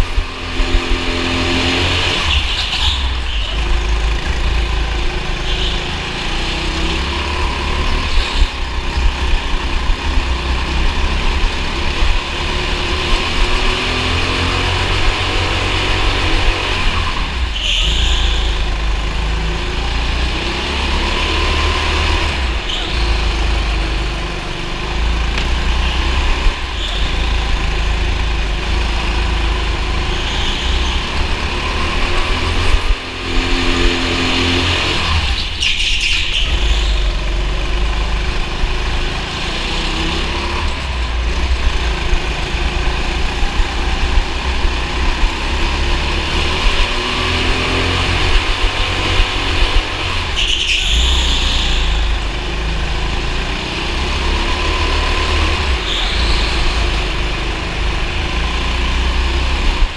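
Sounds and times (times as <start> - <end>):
heavy low rumble: 0.0 - 13.9, 36.4 - 50.4
go-kart engine revving: 0.0 - 59.9
brief high squeals: 17.6 - 18.7.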